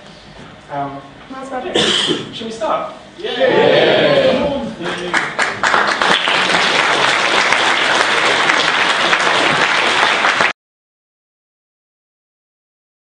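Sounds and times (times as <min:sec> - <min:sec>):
audience applauding: 0:04.8 - 0:10.6.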